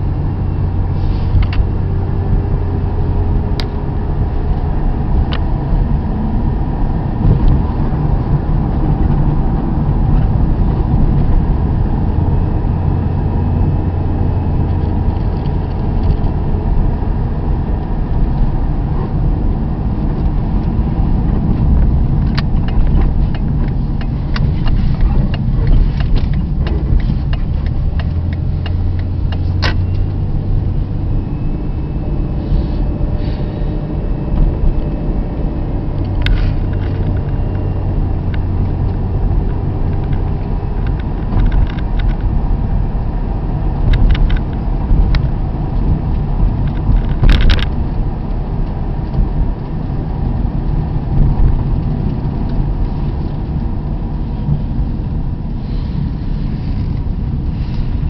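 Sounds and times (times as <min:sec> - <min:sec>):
vehicle engine and road rumble: 0:00.0 - 0:58.0
clicks and rattles: 0:39.9 - 0:42.3, 0:46.6 - 0:47.8.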